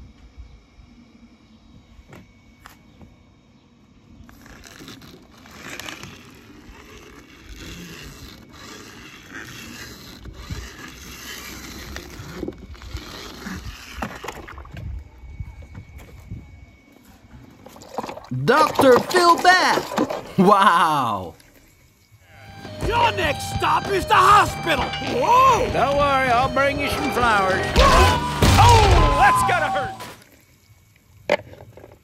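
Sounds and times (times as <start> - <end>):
toy cars scraping over rocky ground: 4.2 - 15.0.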